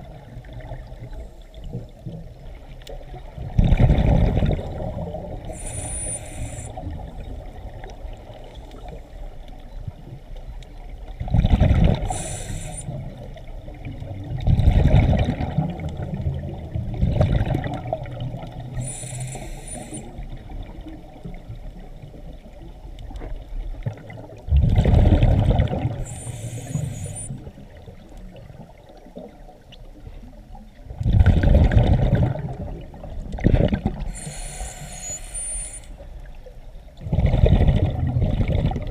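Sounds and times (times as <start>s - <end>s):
exhaled air bubbling: 0.0s - 9.2s, 11.1s - 38.9s
regulator inhalation hiss: 5.5s - 7.0s, 12.1s - 13.0s, 18.8s - 20.2s, 26.0s - 27.5s, 34.1s - 36.0s.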